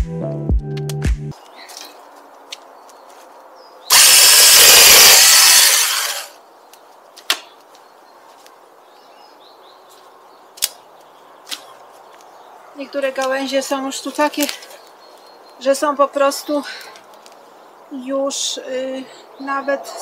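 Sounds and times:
saw cutting through branch: 3.9s - 6.4s
branch snapping: 6.7s - 7.6s, 10.5s - 12.3s.

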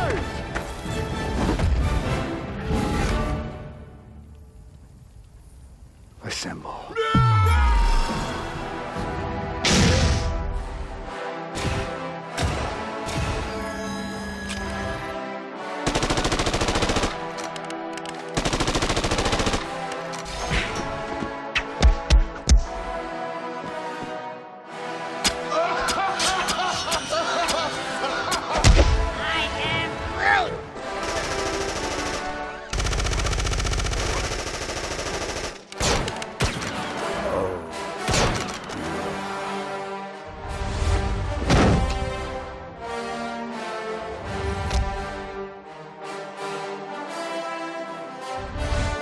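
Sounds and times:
background music: 0.0s - 5.2s, 6.2s - 49.0s
machine-gun burst: 31.0s - 35.6s.

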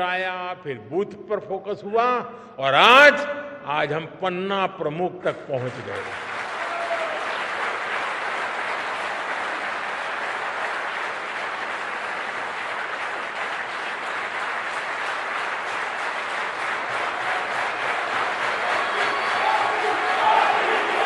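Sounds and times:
audience applauding: 5.6s - 21.0s.

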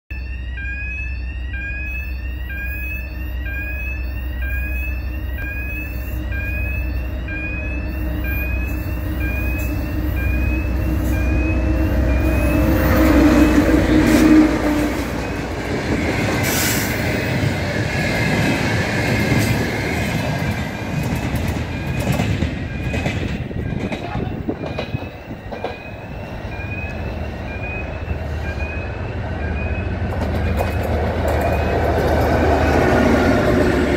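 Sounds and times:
rising electronic chirp: 0.1s - 14.2s
diesel locomotive engine drone: 0.1s - 33.9s
wheel and rail clatter: 14.1s - 26.0s, 30.0s - 33.9s.

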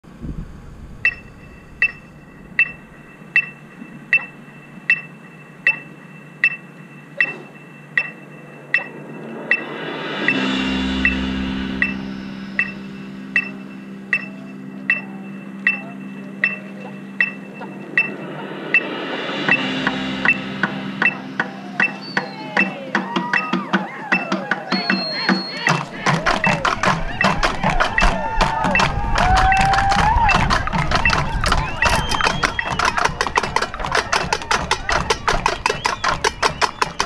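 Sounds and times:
held low chord: 0.5s - 23.6s
metronome beeping: 1.0s - 37.0s.

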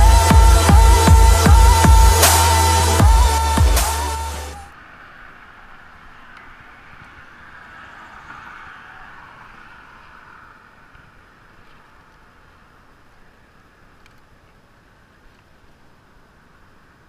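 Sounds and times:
electronic background music: 0.0s - 4.7s
faint outdoor rushing noise: 0.0s - 17.0s.

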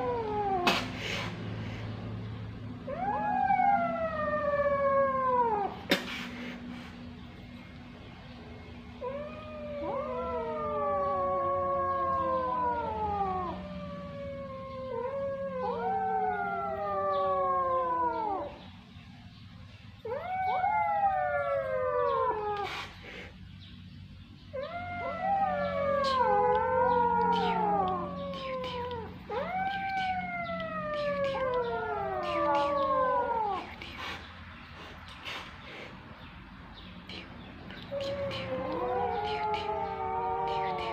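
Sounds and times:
kittens meowing: 0.0s - 1.0s, 9.0s - 18.6s, 24.5s - 34.2s, 37.1s - 40.9s.

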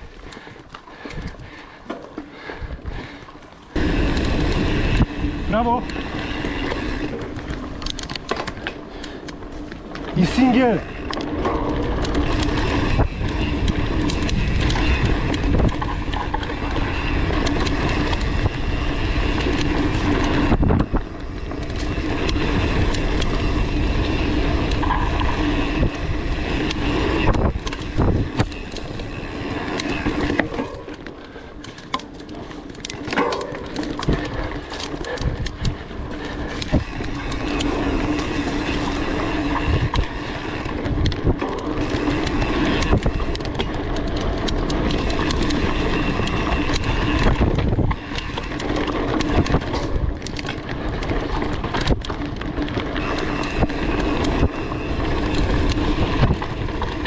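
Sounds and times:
bike rattling over bumps: 0.0s - 57.0s
bike tyres rumbling on dirt trail: 0.0s - 57.0s
wind buffeting microphone: 10.2s - 30.9s, 33.2s - 57.0s.

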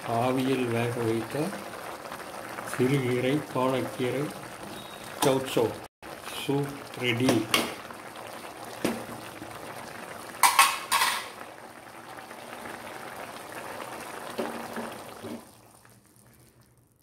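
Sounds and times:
soup bubbling in pot: 0.0s - 17.0s
metal clinks against pot: 10.4s - 11.3s.

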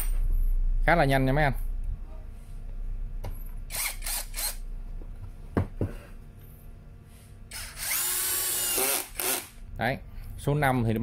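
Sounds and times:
cordless screwdriver whirring: 3.7s - 4.6s, 7.5s - 9.6s.

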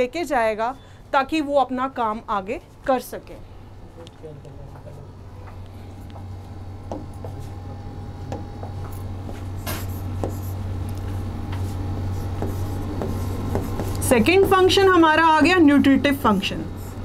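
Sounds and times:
steady low hum: 0.0s - 17.0s
stylus tapping and scratching: 8.3s - 15.0s.

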